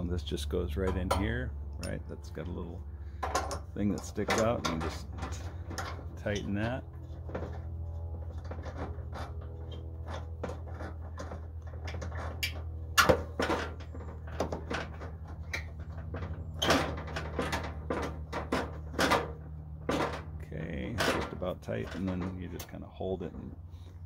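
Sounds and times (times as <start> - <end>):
steady low hum: 0.0 - 24.0
metal fitting clicks and knocks: 0.8 - 2.1, 3.2 - 6.8.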